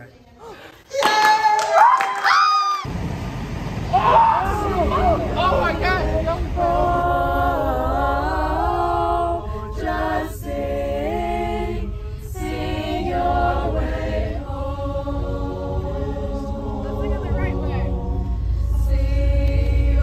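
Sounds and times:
bus engine low rumble: 2.9s - 20.0s
choir singing in harmony: 4.3s - 20.0s.

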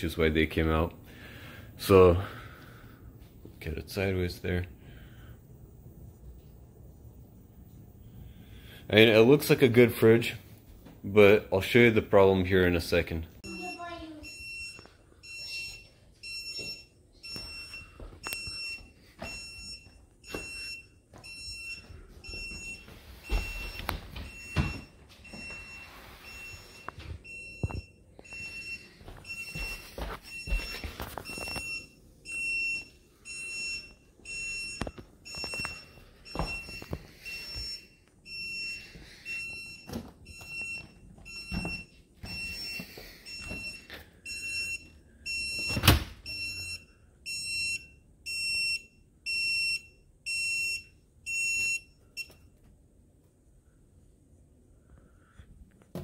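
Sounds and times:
refrigerator alarm beeping: 11.9s - 52.6s.

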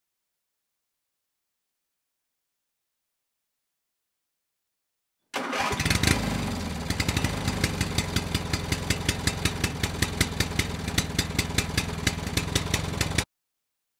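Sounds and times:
engine idling with ticks: 6.0s - 13.2s.

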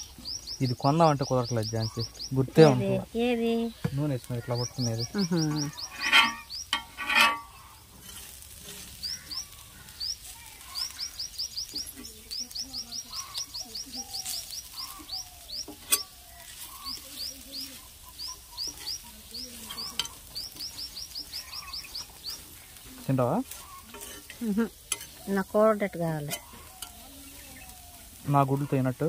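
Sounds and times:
bird chirping: 0.0s - 29.0s
food sizzling on a griddle: 0.0s - 29.0s
metal spatula scraping and tapping: 5.5s - 9.5s, 13.0s - 17.9s, 18.6s - 25.4s, 26.2s - 27.4s.

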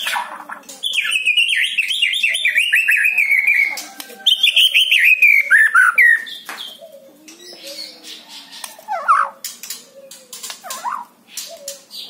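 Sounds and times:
bird twittering: 0.0s - 12.0s
bird whistling song: 0.8s - 8.0s.

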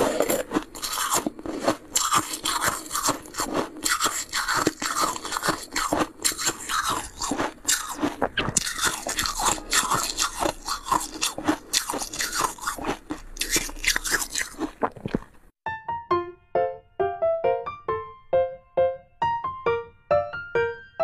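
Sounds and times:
ice being crunched and chewed: 0.0s - 15.5s.

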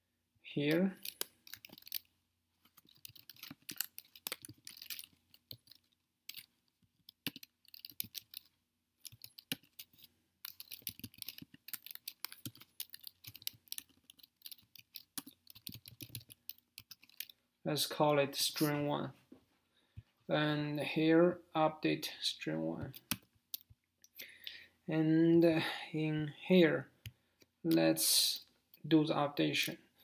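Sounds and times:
typing on a computer keyboard: 1.0s - 2.1s, 2.7s - 17.4s.

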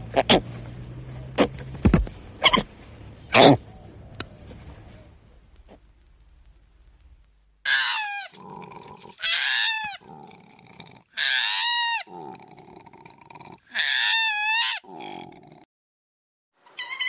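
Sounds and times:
quieter low koala sounds: 3.3s - 15.7s
koala screaming: 7.7s - 10.3s, 11.1s - 12.4s, 13.5s - 15.3s.

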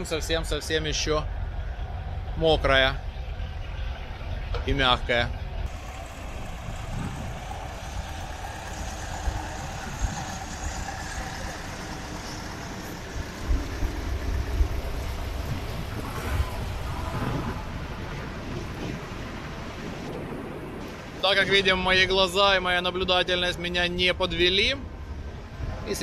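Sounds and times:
diesel truck engine running: 0.0s - 19.8s
wind buffeting microphone: 0.0s - 26.0s.

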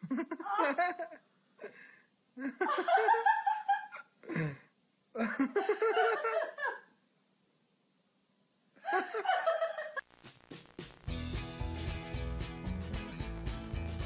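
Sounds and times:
person laughing: 0.0s - 1.2s, 2.4s - 4.6s, 5.2s - 6.9s, 8.8s - 10.0s.

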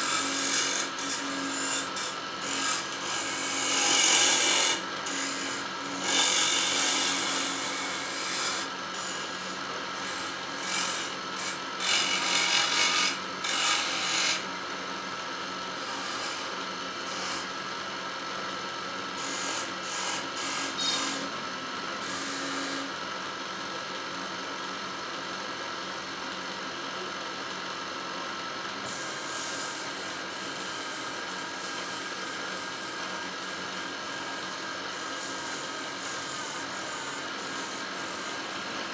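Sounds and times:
chisel scraping spinning wood: 0.0s - 9.2s, 10.0s - 14.4s
wood lathe running: 0.0s - 14.4s.

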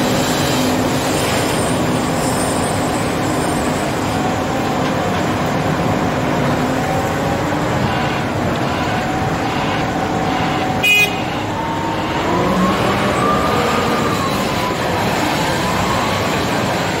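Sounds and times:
wheel loader diesel engine revving: 11.5s - 17.0s.

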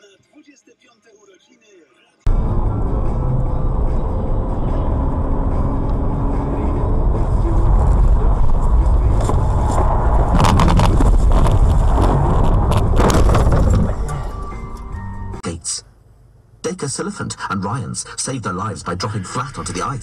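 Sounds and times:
car engine and road rumble: 2.2s - 20.0s
knocks and rattles of car jolting: 9.2s - 14.4s.

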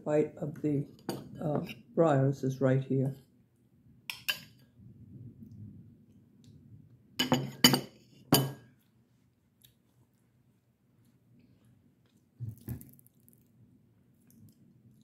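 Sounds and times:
metal spoon clinking against bowl: 4.1s - 4.6s.

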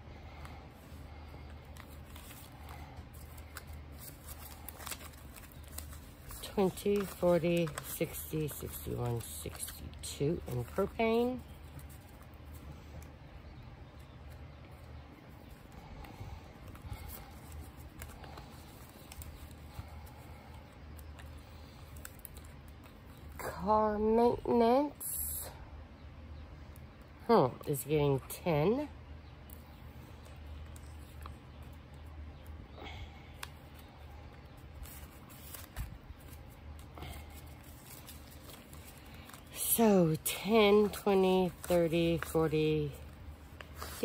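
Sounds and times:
faint low hum: 0.0s - 44.0s
paper bills rustling: 0.8s - 13.1s, 15.4s - 23.3s, 33.4s - 44.0s.

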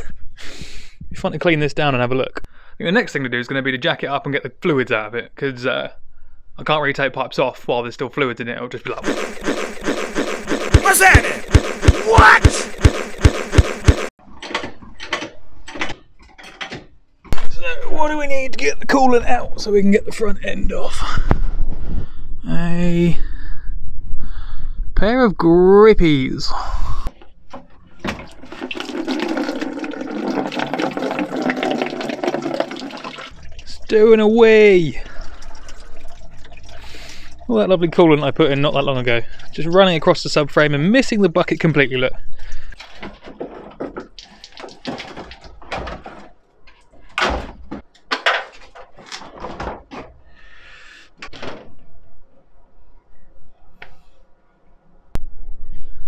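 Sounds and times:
car parts clunking and knocking: 14.2s - 17.4s, 42.8s - 50.3s
coolant pouring and splashing: 28.0s - 37.9s, 42.4s - 45.8s.

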